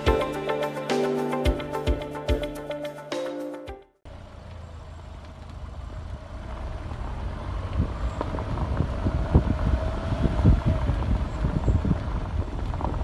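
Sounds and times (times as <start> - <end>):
wind buffeting microphone: 7.6 - 13.0.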